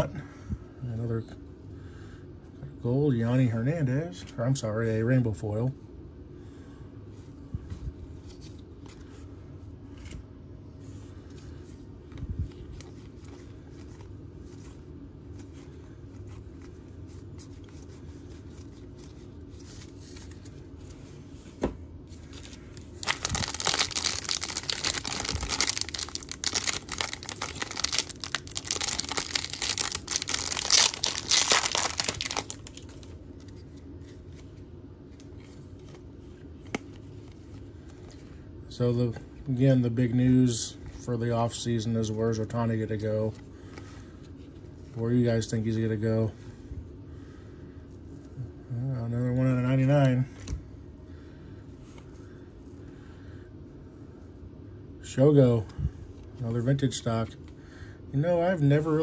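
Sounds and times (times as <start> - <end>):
faint handling sounds: 7.0 - 46.6
wrapper tearing and crinkling: 23.0 - 33.2.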